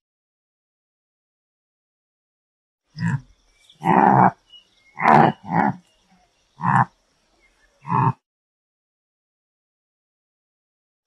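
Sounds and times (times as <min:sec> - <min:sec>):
antelope calling: 0:03.0 - 0:08.2.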